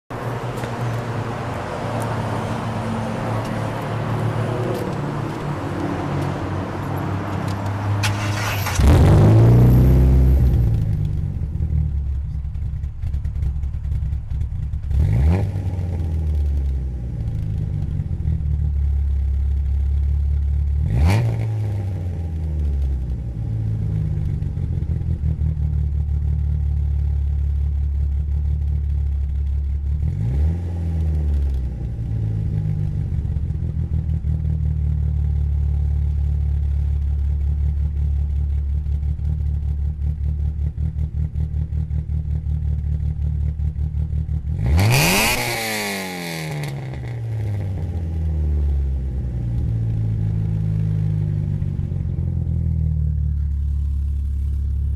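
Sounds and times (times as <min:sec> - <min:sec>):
engine revving: 0:00.2 - 0:11.8, 0:14.8 - 0:18.3, 0:20.8 - 0:24.4, 0:30.0 - 0:33.8, 0:43.8 - 0:51.6
car engine idling: 0:09.6 - 0:20.9, 0:22.3 - 0:30.0, 0:31.2 - 0:44.6, 0:47.2 - 0:54.9.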